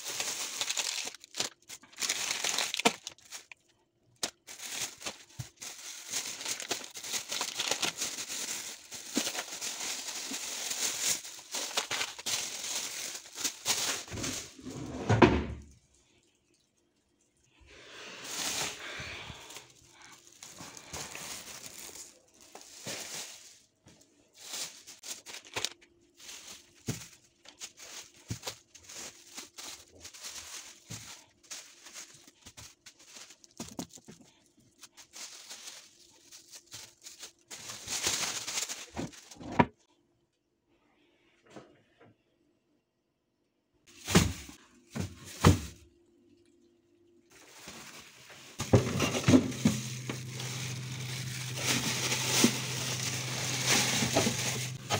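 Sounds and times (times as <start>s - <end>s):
plastic bags rustling: 0.0s - 15.0s, 17.3s - 39.6s, 43.9s - 45.8s, 47.3s - 54.9s
low steady hum: 39.9s - 54.9s
items being set down: 47.5s - 54.9s.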